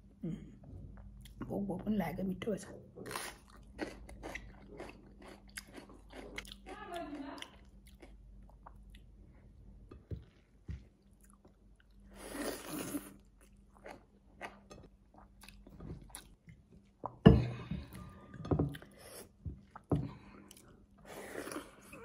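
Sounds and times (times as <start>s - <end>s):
person chewing and biting food: 3.1s - 6.7s.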